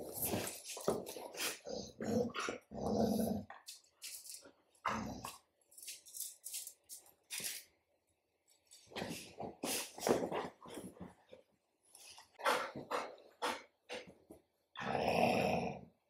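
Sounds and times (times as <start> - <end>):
dogs growling: 0.1 - 3.7, 14.8 - 16.0.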